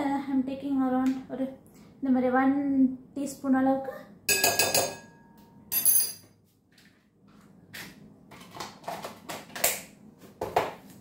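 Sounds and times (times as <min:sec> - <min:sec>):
metal spoon clinking glass bowl: 0:04.3 - 0:06.3.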